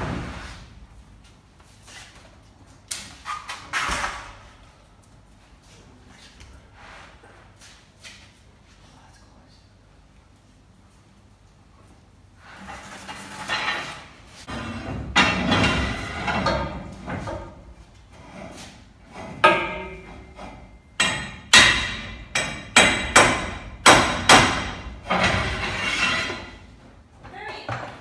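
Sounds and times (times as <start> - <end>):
rough knocking and scraping: 12.4 - 26.6
hammer striking: 19.4 - 25.3.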